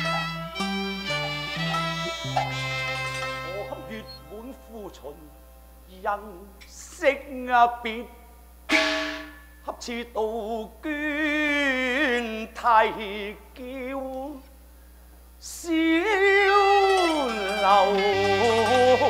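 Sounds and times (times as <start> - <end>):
opera singing with vibrato: 3.4 - 5.3, 15.5 - 19.0.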